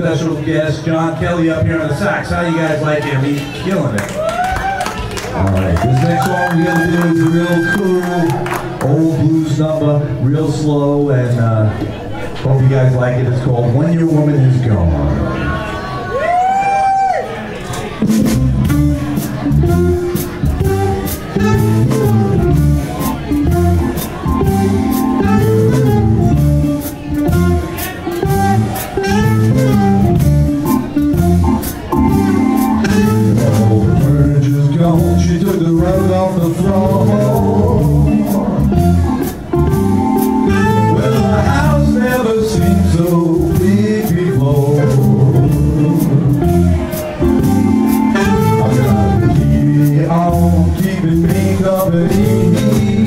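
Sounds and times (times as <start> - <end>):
blues band playing: 3.4 - 10.2, 17.6 - 53.0.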